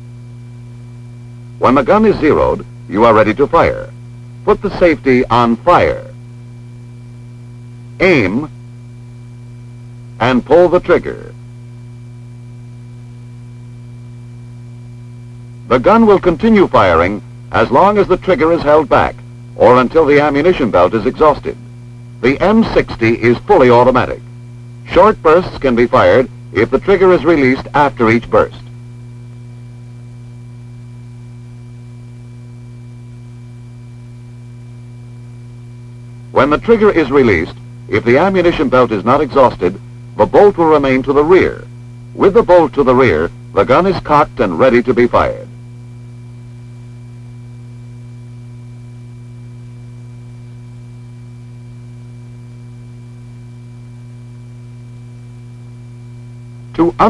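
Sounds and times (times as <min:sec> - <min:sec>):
low buzzing hum: 0:00.0 - 0:57.0.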